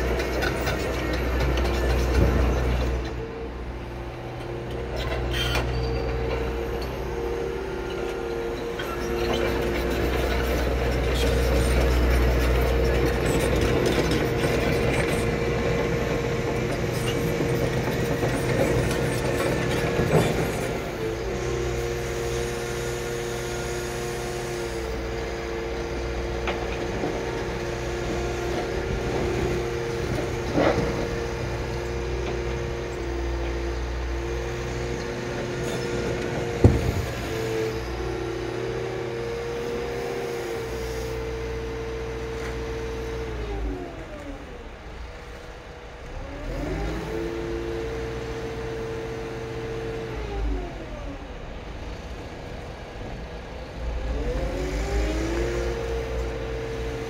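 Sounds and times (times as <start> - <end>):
excavator tracks clattering: 0.0 - 3.4, 7.8 - 21.4, 25.1 - 38.8
hydraulic whine: 0.0 - 45.4
diesel engine running: 0.0 - 57.0.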